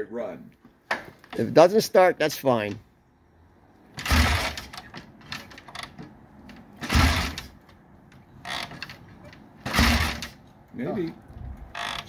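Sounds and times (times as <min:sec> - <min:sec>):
motorcycle kick-start turning over: 0:04.0 - 0:06.0, 0:06.8 - 0:07.6, 0:08.4 - 0:10.4, 0:11.7 - 0:12.0.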